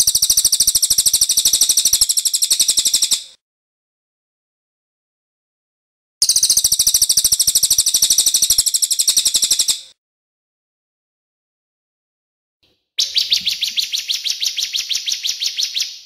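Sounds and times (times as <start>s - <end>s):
songbird rattling trill: 0.0s - 3.3s, 6.2s - 9.9s, 13.0s - 16.0s.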